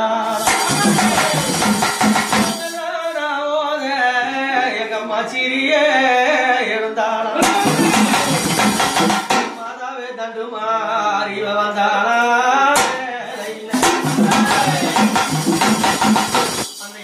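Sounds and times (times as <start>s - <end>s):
drum beats: 0.3s - 2.8s, 7.4s - 9.6s, 12.8s - 13.1s, 13.7s - 17.0s.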